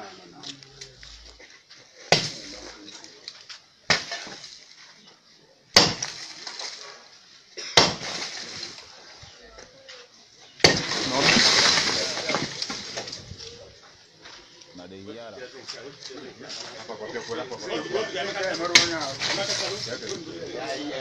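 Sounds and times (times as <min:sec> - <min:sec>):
hammer smashing cement wall: 0:02.1 - 0:02.6, 0:03.9 - 0:04.5, 0:05.8 - 0:06.7, 0:07.8 - 0:08.8, 0:10.6 - 0:13.2
falling masonry crash: 0:02.1 - 0:02.9, 0:03.9 - 0:04.8, 0:05.7 - 0:06.9, 0:07.7 - 0:09.3, 0:10.6 - 0:13.8, 0:18.2 - 0:20.6
rubble clattering down: 0:10.6 - 0:13.8, 0:18.4 - 0:20.3.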